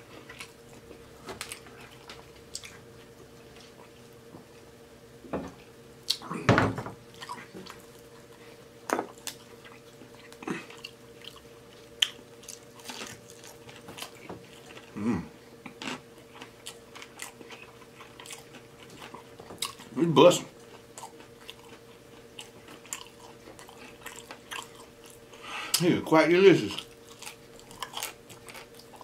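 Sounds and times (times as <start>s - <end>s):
faint steady hum: 0.0s - 29.0s
chewing with wet clicks: 0.2s - 4.1s, 9.0s - 14.9s, 15.6s - 20.0s, 20.6s - 25.8s, 26.7s - 29.0s.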